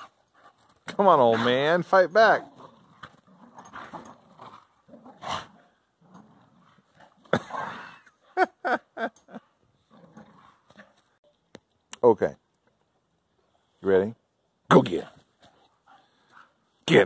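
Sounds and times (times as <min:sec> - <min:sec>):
dogs growling: 0:02.3 - 0:08.4, 0:09.2 - 0:11.1.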